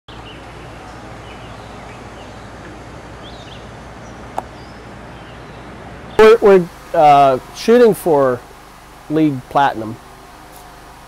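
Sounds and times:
high bird chirps: 0.1 - 6.2
low background noise: 0.1 - 11.0.

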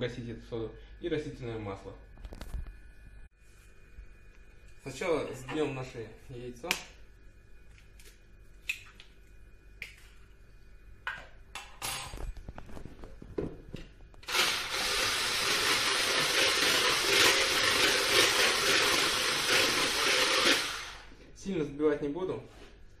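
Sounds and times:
electric hand blender whisking: 14.2 - 21.1.

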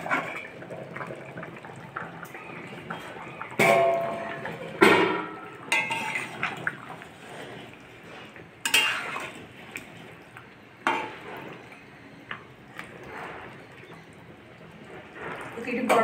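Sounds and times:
metal spatula clanking on pan: 3.6 - 6.5, 8.6 - 9.3.

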